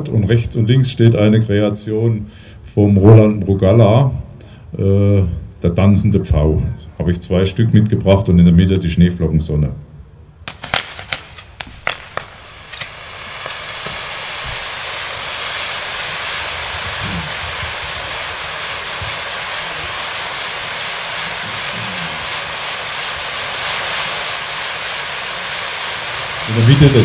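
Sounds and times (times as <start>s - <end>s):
firework fountain hissing: 10.3s - 27.0s
firework pops: 10.4s - 27.0s.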